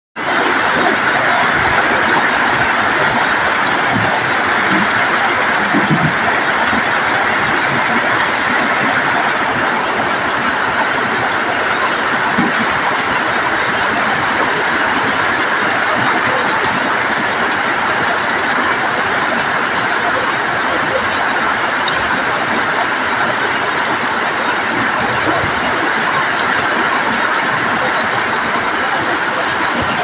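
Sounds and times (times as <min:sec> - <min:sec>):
rain on metal roofs: 0:00.2 - 0:30.0.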